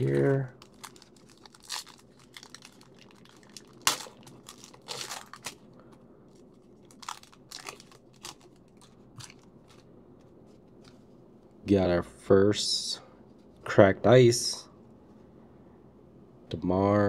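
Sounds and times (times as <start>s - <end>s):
foil wrapper tearing and crinkling: 0.6s - 5.6s, 6.8s - 9.8s.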